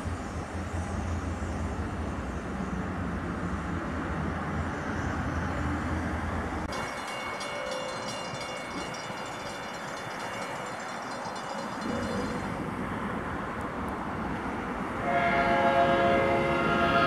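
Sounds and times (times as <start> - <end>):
diesel locomotive approaching: 0.0 - 17.0
freight train rumbling: 0.0 - 17.0
crossing warning bell ringing: 6.7 - 13.0.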